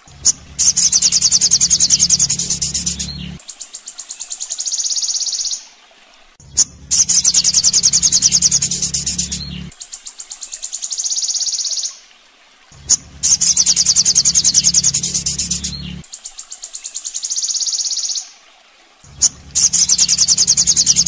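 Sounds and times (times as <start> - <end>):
fast high-pitched bird trilling: 0.2 - 3.4, 6.6 - 9.6, 12.9 - 15.9, 19.2 - 21.0.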